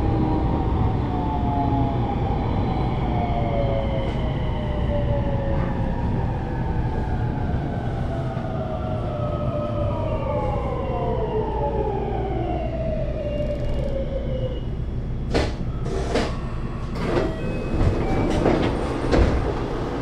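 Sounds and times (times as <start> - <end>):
train wheels rumbling on rails: 15.2 - 20.0.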